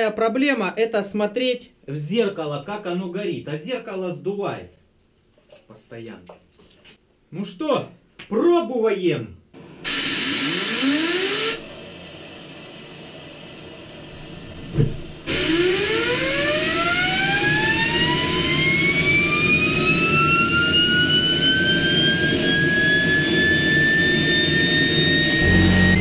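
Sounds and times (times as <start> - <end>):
jet engine whine rising: 9.6 - 26.0.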